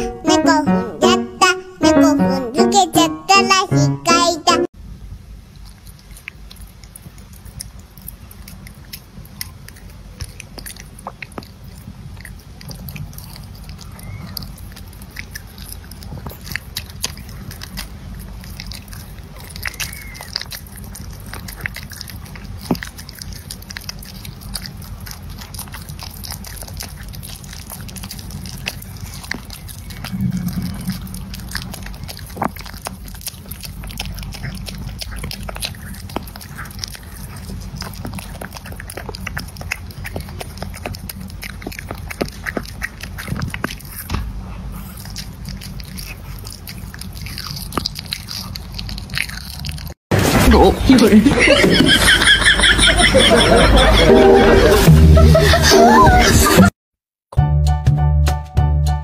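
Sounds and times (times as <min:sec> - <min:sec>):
puppy gnawing corn cob: 0:05.4 - 0:51.1
brief low sound: 0:30.0 - 0:31.5.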